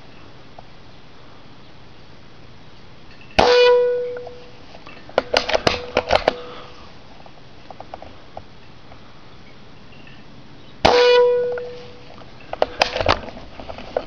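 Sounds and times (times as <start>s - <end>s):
air rifle shot: 10.8s - 11.8s.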